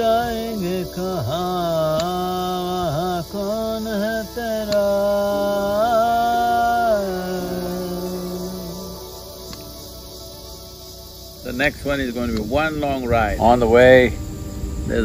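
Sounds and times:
man singing chant-like melody: 0.0 - 9.7.

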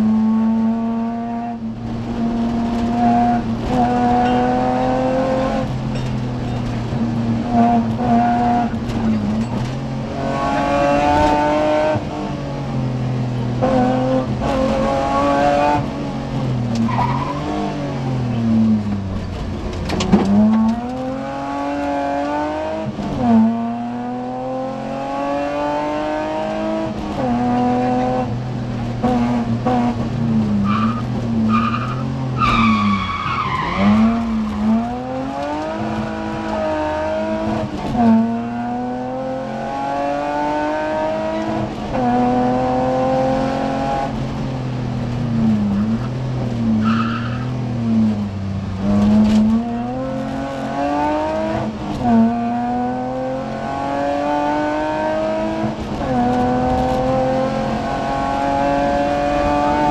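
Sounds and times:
rally car engine revving: 0.0 - 59.9
tyre squeal: 30.6 - 34.8, 46.8 - 47.6.

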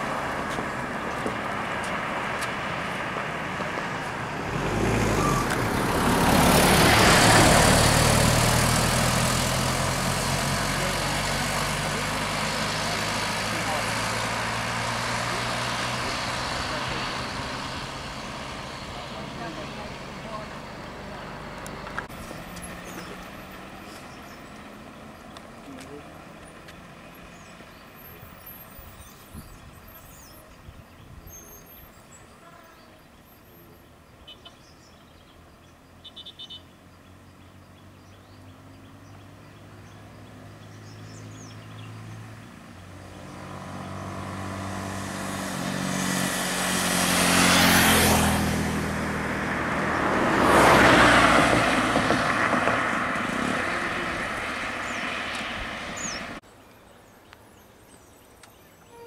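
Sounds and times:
low engine hum: 0.0 - 36.0
vehicles passing close by: 0.0 - 59.0.

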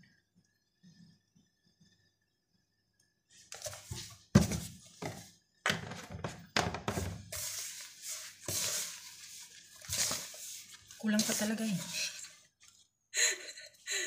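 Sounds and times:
dough squishing by hand: 3.4 - 13.0.

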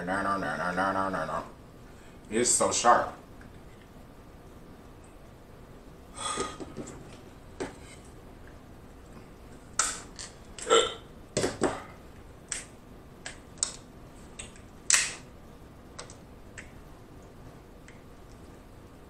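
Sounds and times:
crab shell cracking: 12.4 - 15.2.

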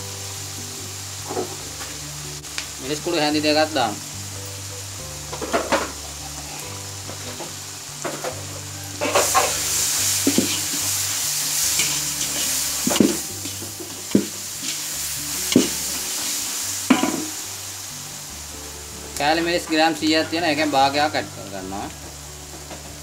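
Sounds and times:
onions sizzling in hot oil: 0.0 - 23.0
ladle scraping wok: 5.3 - 17.8.

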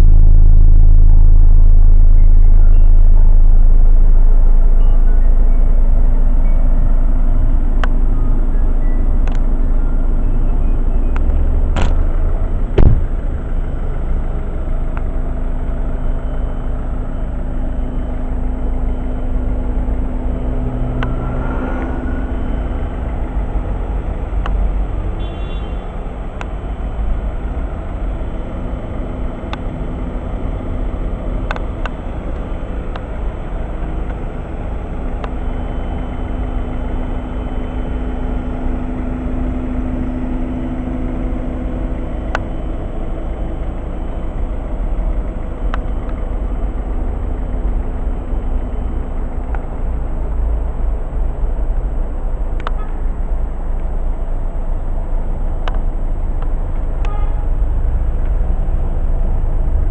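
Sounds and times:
diesel engine idling: 0.0 - 59.9
sharp knock: 12.8 - 13.1.

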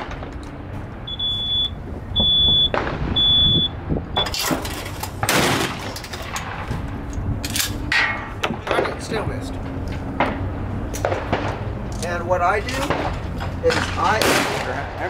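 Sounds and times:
high electronic beeps: 1.1 - 4.4
sharp gunshots: 2.7 - 3.2, 5.2 - 6.7, 10.2 - 11.8, 12.8 - 15.0.

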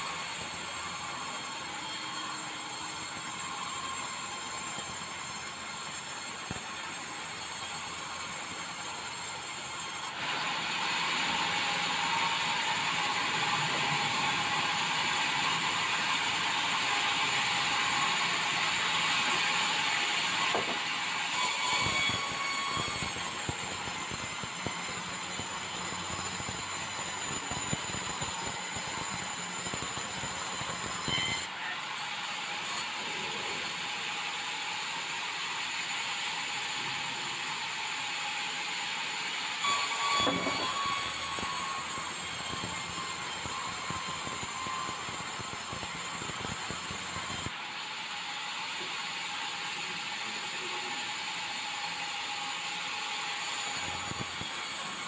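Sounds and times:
sawmill saw ripping timber: 20.4 - 31.5, 39.6 - 47.5.

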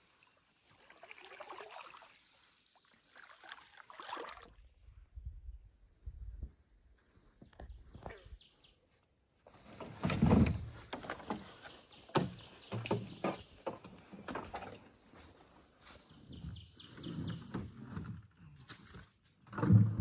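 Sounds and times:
camping gear knocks and thumps: 9.7 - 14.9.

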